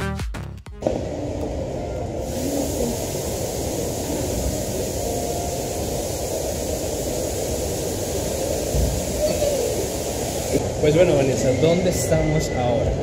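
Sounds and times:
restaurant background noise: 0:00.8 - 0:11.7
high hiss: 0:02.1 - 0:12.5.

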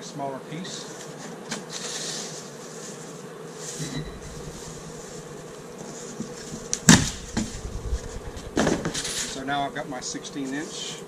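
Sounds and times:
foam board rustling and scraping: 0:00.8 - 0:09.6
foam board cracking: 0:06.5 - 0:07.6.

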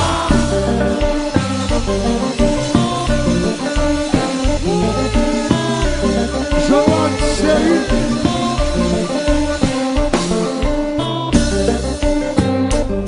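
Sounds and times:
bass line: 0:00.0 - 0:13.0
guitar melody: 0:00.0 - 0:13.0
live band playing: 0:00.0 - 0:13.0.

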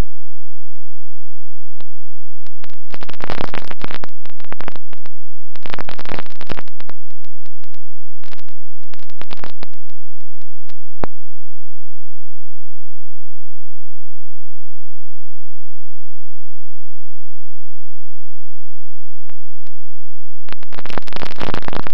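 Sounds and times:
crackling rushing noise: 0:01.6 - 0:11.8, 0:19.3 - 0:21.9.

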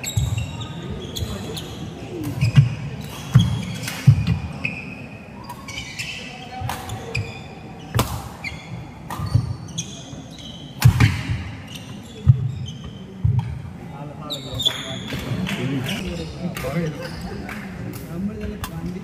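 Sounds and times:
shoes squeaking on floor: 0:00.0 - 0:13.5, 0:14.2 - 0:17.4
rackets striking shuttlecock: 0:09.0 - 0:09.6, 0:10.8 - 0:11.4.

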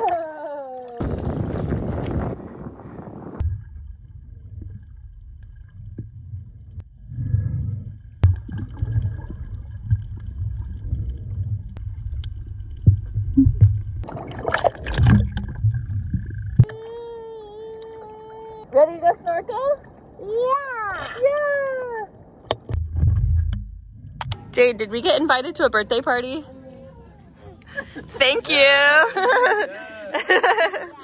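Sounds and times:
muffled underwater rumble: 0:00.9 - 0:16.7
underwater bubbling: 0:03.2 - 0:16.8
water splashing: 0:03.4 - 0:17.0.

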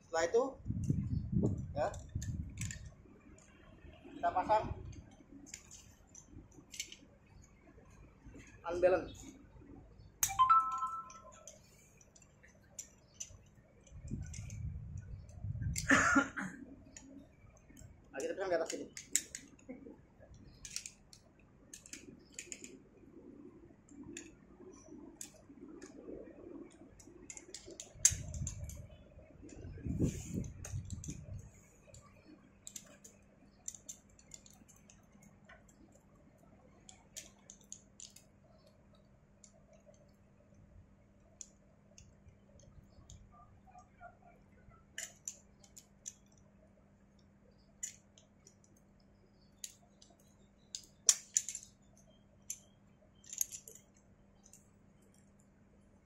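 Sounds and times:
metal carabiners clicking: 0:01.9 - 0:03.5, 0:05.0 - 0:07.0, 0:10.2 - 0:15.9, 0:16.9 - 0:19.7, 0:20.3 - 0:22.8, 0:27.0 - 0:29.6, 0:32.6 - 0:35.9, 0:36.9 - 0:38.7, 0:45.0 - 0:46.4, 0:47.8 - 0:48.8, 0:49.5 - 0:51.8, 0:52.4 - 0:54.7.

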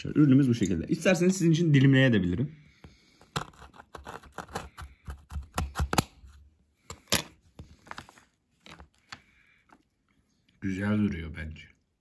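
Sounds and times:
knife crunching through biscuit: 0:03.2 - 0:08.1.

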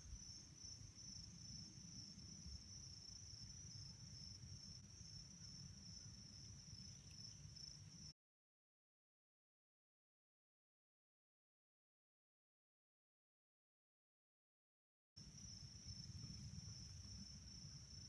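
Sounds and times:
crickets trilling: 0:00.0 - 0:08.1.

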